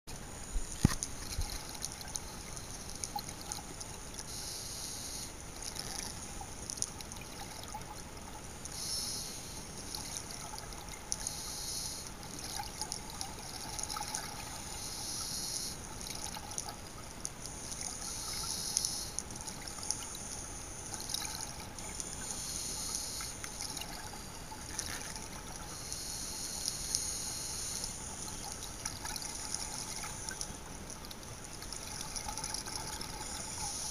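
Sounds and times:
underwater hiss with crackling: 0.2 - 33.9
underwater bubbling bursts: 12.0 - 15.1, 15.7 - 26.7, 27.9 - 33.9.

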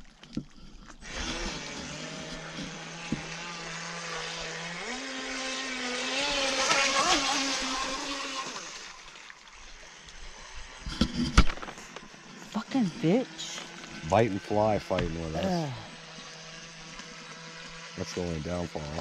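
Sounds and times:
model boat motor: 0.0 - 19.0.

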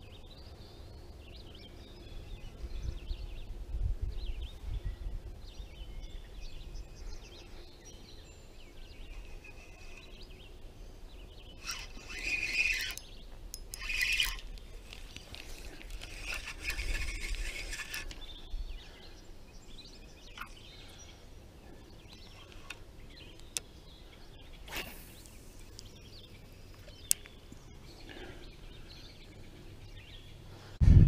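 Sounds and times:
faint bird calls: 8.9 - 10.5
reel clicks: 11.6 - 18.2
fishing rod handling rustle: 11.6 - 18.3
fishing rod swish: 24.7 - 25.1.

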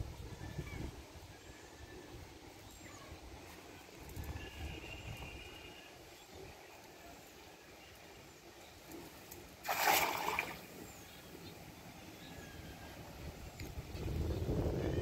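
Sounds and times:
net splashing into water: 9.6 - 10.7.

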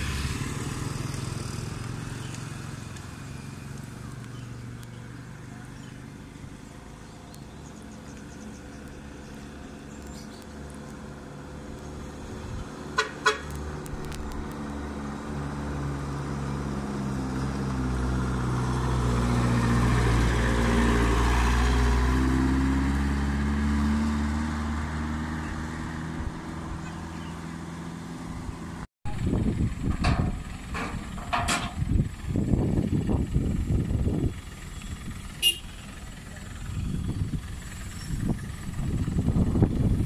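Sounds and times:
truck engine passing: 0.0 - 40.0
truck horn toots: 13.0 - 13.5, 35.4 - 36.0.

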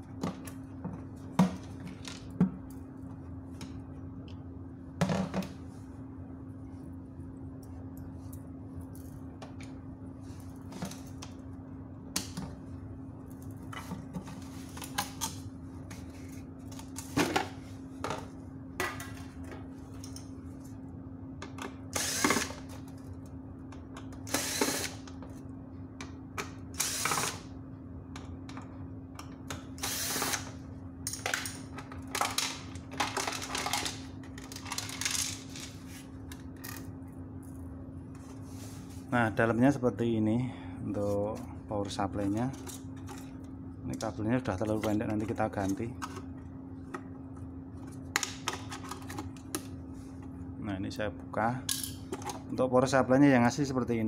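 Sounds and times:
steady low hum: 0.0 - 54.0
cordless drill bursts: 22.0 - 22.4, 24.3 - 24.9, 29.8 - 30.4.

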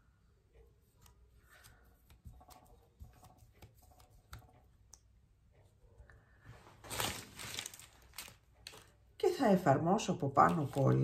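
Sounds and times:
glue brush tapping on paper: 1.0 - 5.1.

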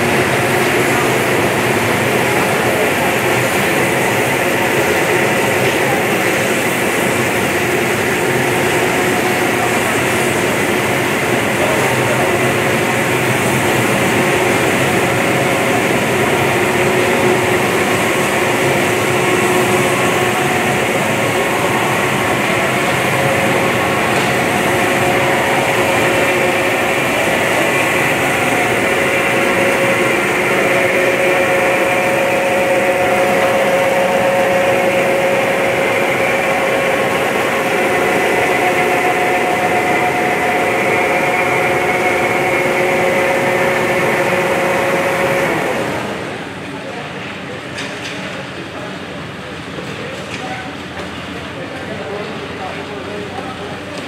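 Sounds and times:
steady machine drone: 0.0 - 54.0.

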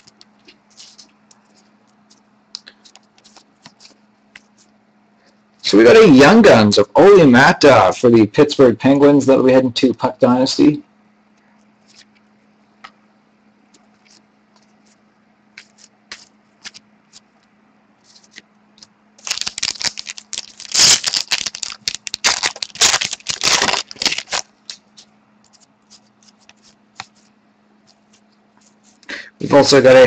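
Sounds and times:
trading cards clicking and rustling: 0.0 - 4.7, 13.6 - 17.4, 18.1 - 29.0
faint steady hum: 0.0 - 30.0
foil wrapper crinkling and tearing: 19.2 - 26.8.

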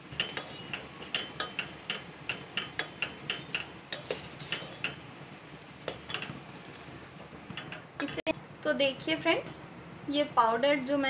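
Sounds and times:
metal spoon clinking in saucepan: 0.0 - 5.0.

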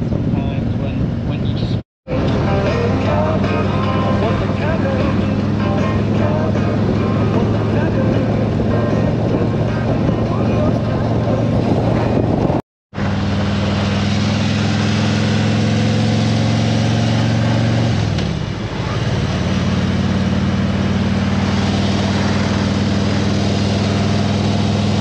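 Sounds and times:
wind rush over microphone: 0.0 - 12.6
motorcycle engine running: 0.0 - 25.0.

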